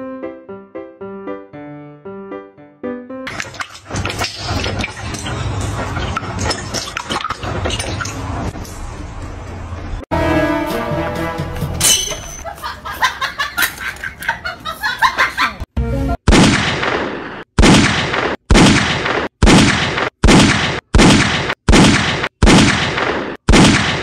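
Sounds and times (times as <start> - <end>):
choppy music: 10.1 - 12.4.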